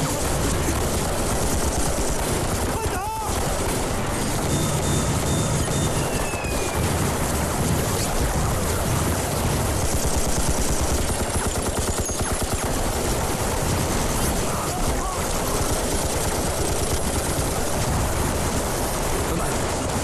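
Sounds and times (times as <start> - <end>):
rifles and machine guns firing: 0.0 - 20.0
falling whistle: 5.8 - 6.8.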